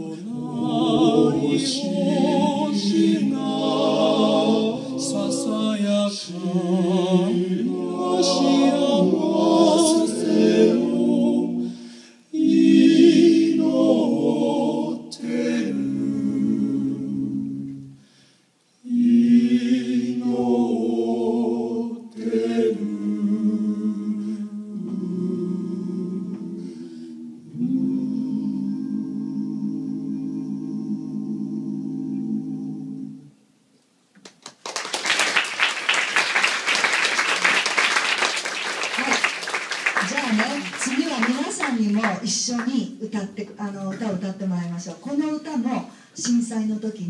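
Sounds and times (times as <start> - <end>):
male quartet singing a cappella: 0.0 - 18.0, 18.8 - 33.4.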